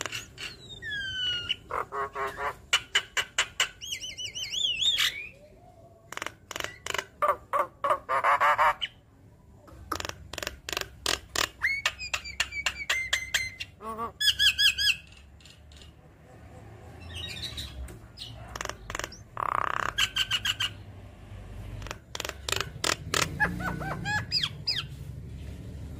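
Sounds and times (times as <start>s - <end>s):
bird singing clicks and chirps: 10.0s - 13.6s.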